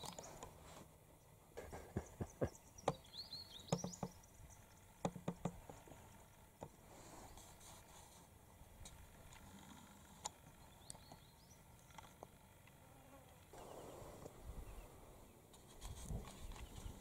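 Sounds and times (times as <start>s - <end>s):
faint insect buzz: 3.6s - 17.0s.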